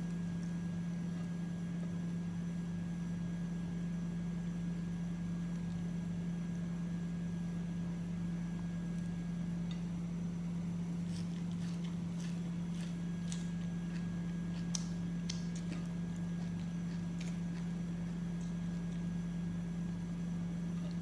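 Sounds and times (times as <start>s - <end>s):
fingers tearing food: 10.6s - 19.3s
eating clicks and crackles: 11.0s - 19.2s.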